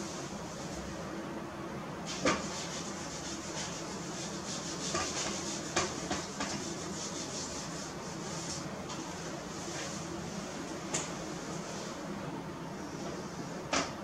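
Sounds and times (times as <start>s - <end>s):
eraser scrubbing whiteboard: 2.1s - 10.4s.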